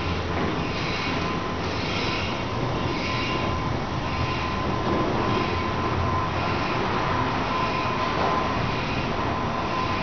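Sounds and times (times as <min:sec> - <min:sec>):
elevator car rumbling: 0:00.0 - 0:10.0
thin constant whine: 0:00.0 - 0:10.0.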